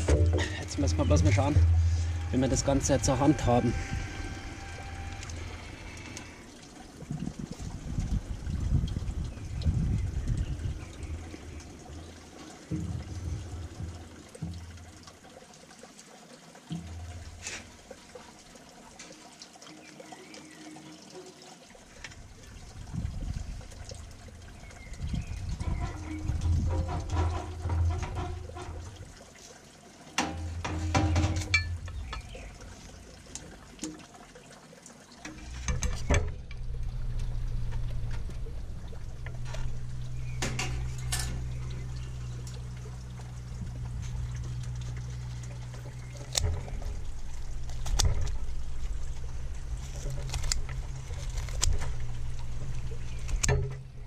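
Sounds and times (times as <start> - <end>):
steady low hum: 0.0 - 15.2, 30.4 - 33.7, 35.4 - 54.0.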